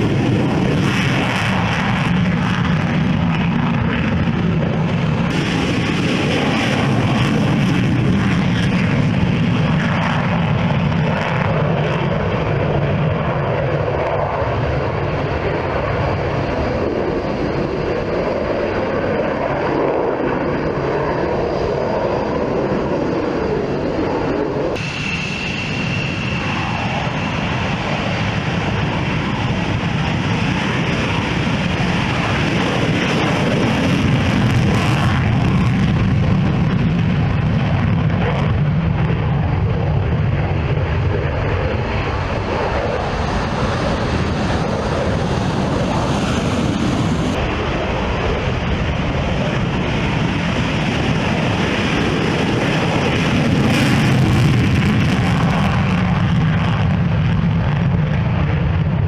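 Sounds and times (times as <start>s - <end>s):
jet engines at takeoff power: 0.0s - 59.0s
brief high whine: 24.8s - 27.2s.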